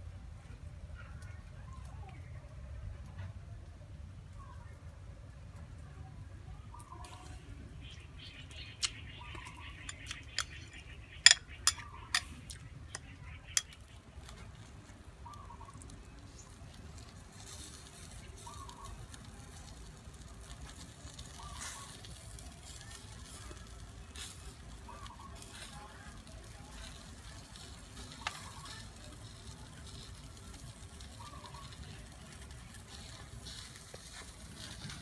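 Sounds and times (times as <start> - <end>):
faint fish sizzling on grill: 0.3 - 35.0
metal spoon clinking ceramic bowl: 9.9 - 12.3.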